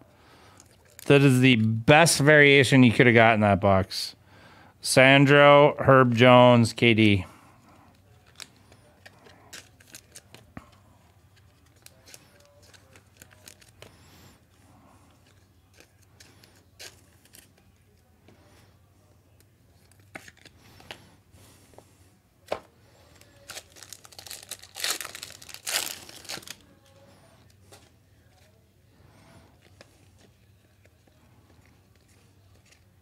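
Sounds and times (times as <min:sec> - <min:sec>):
cards clicking and rustling: 0:07.9 - 0:14.0, 0:15.1 - 0:18.4, 0:19.4 - 0:21.0, 0:22.4 - 0:26.6, 0:29.6 - 0:33.0
foil wrapper torn and crinkled: 0:08.2 - 0:10.5, 0:11.5 - 0:13.9, 0:23.1 - 0:26.7.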